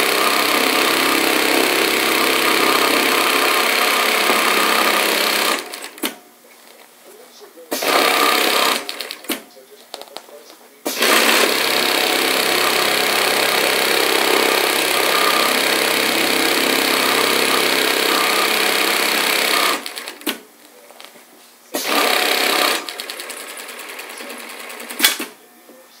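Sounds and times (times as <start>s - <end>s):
sewing machine running: 0.0s - 6.1s, 7.7s - 9.3s, 10.9s - 20.4s, 21.8s - 25.3s.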